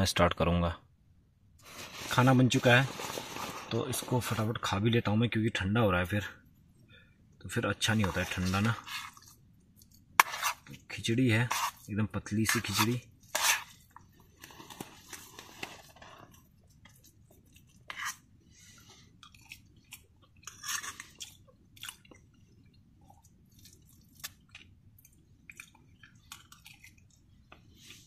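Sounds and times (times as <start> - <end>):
person chewing food: 13.2 - 28.0.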